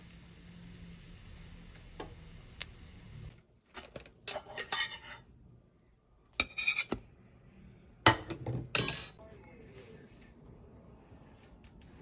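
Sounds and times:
knife clinking on dishes: 0:08.8 - 0:09.2.

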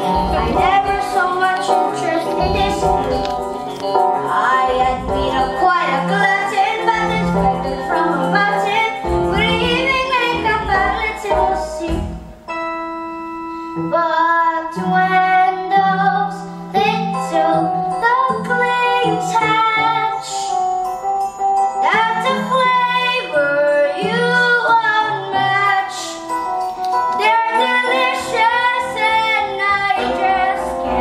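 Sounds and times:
girls singing a show tune: 0:00.0 - 0:03.4, 0:04.3 - 0:12.2, 0:21.8 - 0:26.3, 0:27.2 - 0:31.0
instrumental accompaniment with low beat: 0:00.0 - 0:13.9.

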